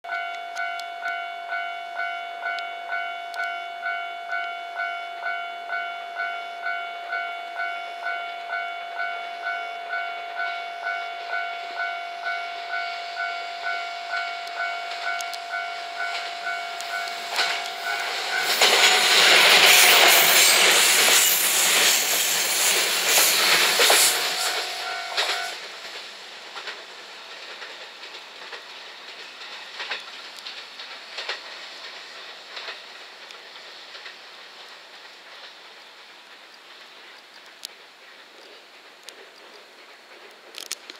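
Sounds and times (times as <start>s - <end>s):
level-crossing alarm bell ringing: 0.1s - 25.6s
electric train passing: 0.1s - 40.7s.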